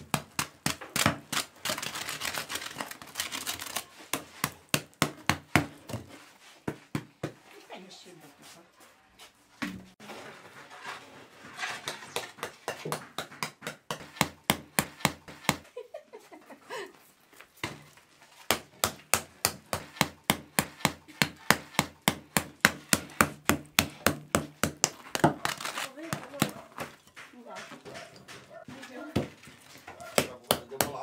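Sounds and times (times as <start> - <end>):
knocks on bread crust: 30.0 - 31.0.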